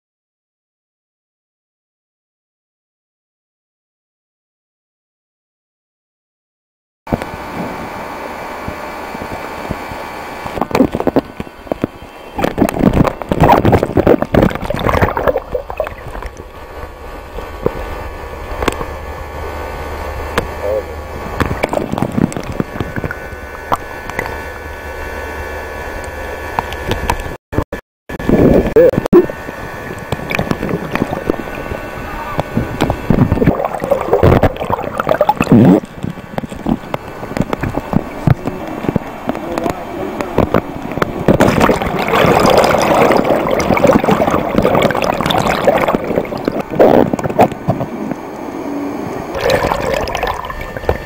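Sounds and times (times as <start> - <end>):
underwater low hum: 7.1 - 27.4, 28.1 - 51.0
crackling bubbles: 10.4 - 18.9, 20.3 - 24.4, 29.1 - 48.4, 49.3 - 51.0
underwater clicks and knocks: 10.6 - 16.4, 21.4 - 24.4, 30.1 - 31.4, 32.8 - 39.7
water splash: 12.4 - 16.6, 21.4 - 24.4, 30.2 - 31.6, 32.8 - 38.4, 41.2 - 47.9, 49.3 - 51.0.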